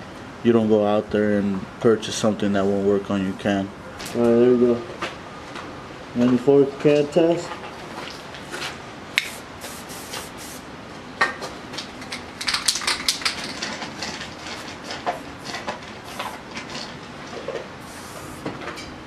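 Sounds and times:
spray can ball rattling: 9.2 - 10.6, 12.1 - 16.4
spray paint hissing: 9.2 - 10.7, 16.0 - 16.4, 17.8 - 18.5.

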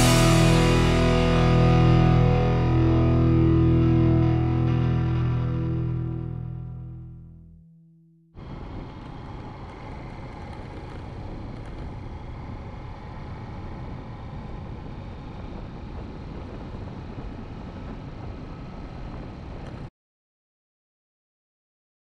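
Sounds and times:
motorcycle engine riding: 0.0 - 4.7, 8.4 - 19.9
background music: 0.0 - 7.6
wind rush: 13.4 - 19.9.

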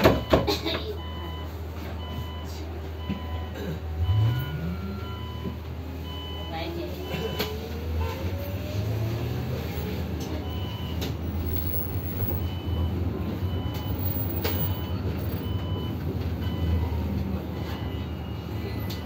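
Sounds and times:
bus low rumble: 0.0 - 19.0
short high-pitched beeps: 10.5 - 15.9.

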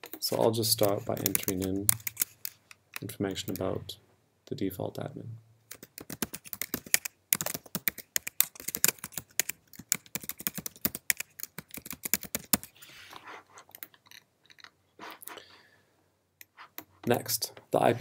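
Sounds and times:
typing on computer keyboard: 0.8 - 3.7, 5.7 - 12.7.

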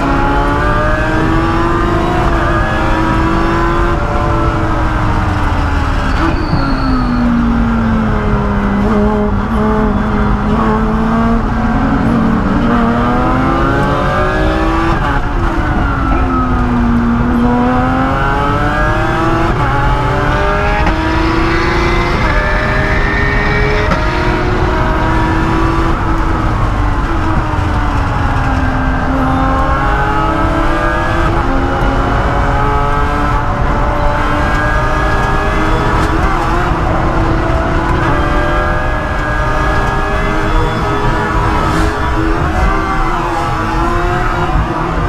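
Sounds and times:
race car engine from cockpit: 0.0 - 45.0.

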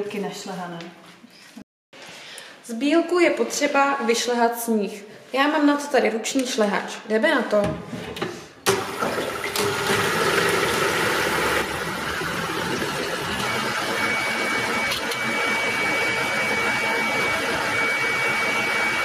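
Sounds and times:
electric hand mixer running: 8.7 - 19.0.

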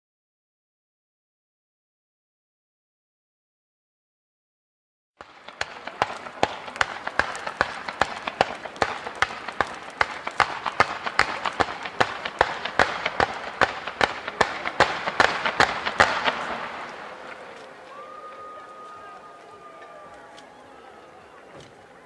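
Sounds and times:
crackling hiss: 5.2 - 22.0
fireworks exploding in volley: 5.2 - 22.0.

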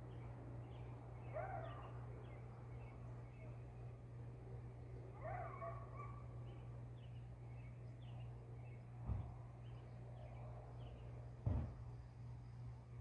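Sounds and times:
faint distant bird chirps: 0.1 - 4.0
low thump: 9.0 - 9.3, 11.4 - 11.9.

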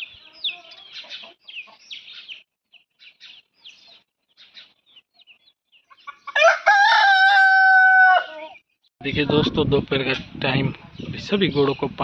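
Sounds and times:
chicks peeping: 0.0 - 12.0
rooster crowing: 6.3 - 8.6.

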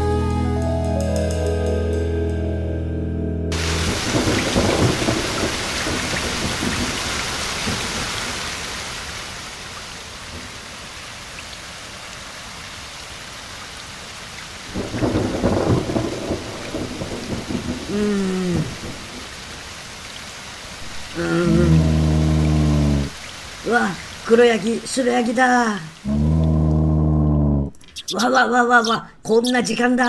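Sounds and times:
thunder rumbling: 3.5 - 8.0, 14.7 - 19.3, 20.8 - 23.3
heavy rain: 3.5 - 27.8.

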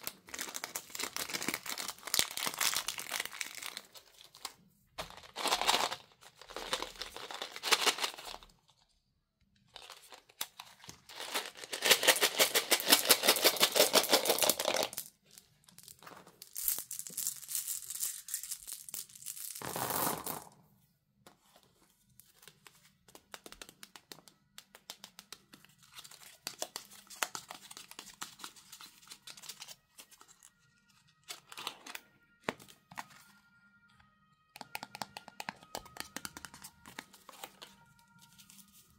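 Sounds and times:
wrappers tearing and crinkling: 0.0 - 8.5, 9.8 - 15.0.

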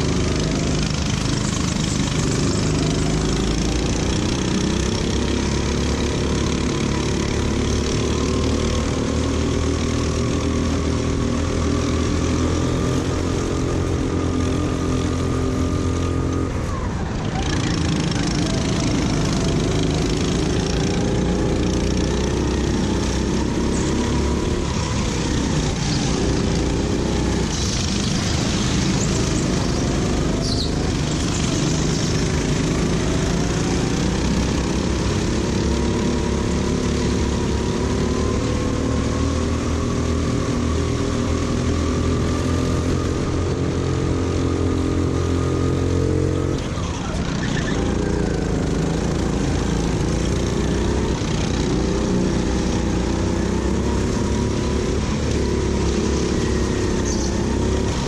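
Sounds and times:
kart engine running hard: 0.0 - 58.0
steady rushing noise: 11.4 - 45.7.

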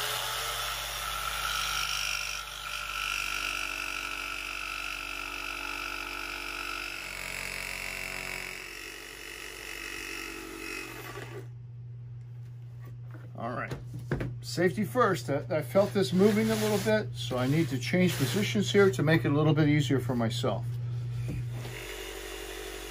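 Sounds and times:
jigsaw cutting wood: 0.0 - 11.5, 21.5 - 22.9.

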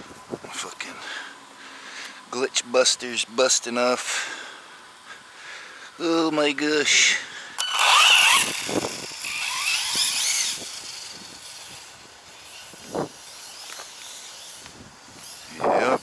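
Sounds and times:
electric motor whining: 7.6 - 16.0.

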